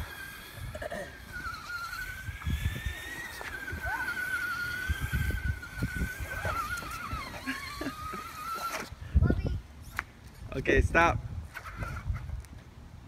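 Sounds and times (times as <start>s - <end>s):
electric motor whining: 0.0s - 9.0s.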